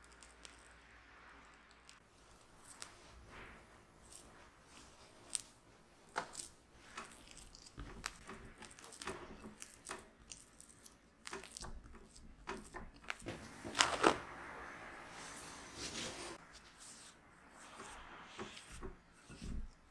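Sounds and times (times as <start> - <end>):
spatula scraping butter in bowl: 16.6 - 19.9.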